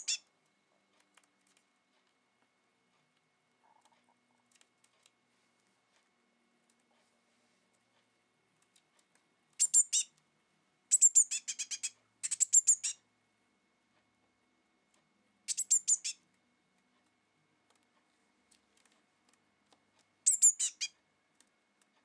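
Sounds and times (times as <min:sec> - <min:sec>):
high-pitched bird chirps: 0:00.0 - 0:00.2, 0:09.6 - 0:10.1, 0:10.9 - 0:13.0, 0:15.5 - 0:16.2, 0:20.2 - 0:21.0.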